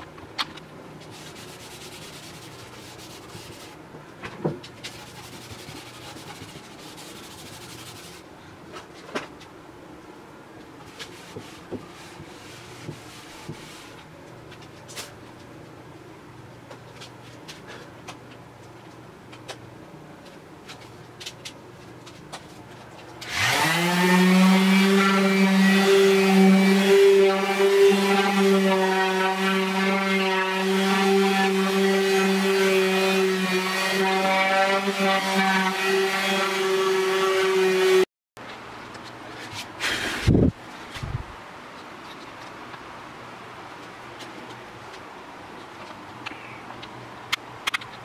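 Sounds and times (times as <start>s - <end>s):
cloth rag rubbing on wood: 1.1s - 3.8s
orbital sander sanding wood: 23.3s - 38.0s.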